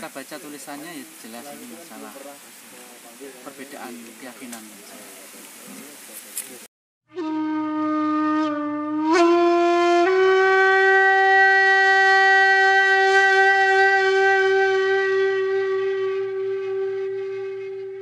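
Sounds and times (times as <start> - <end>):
long horn-like music note: 7.1 - 18.0.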